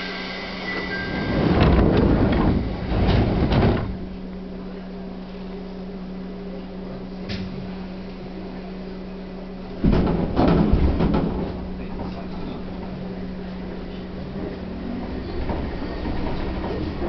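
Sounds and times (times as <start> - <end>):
train clattering and rattling: 0.0 - 4.2, 9.7 - 17.0
train electrical hum: 0.0 - 17.0.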